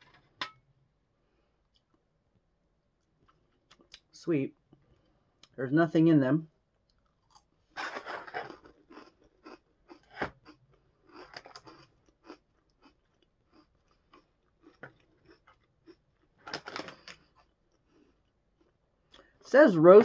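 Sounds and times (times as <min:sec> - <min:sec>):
crunching and chewing: 0:06.8 - 0:19.4
small crackles: 0:06.8 - 0:19.4.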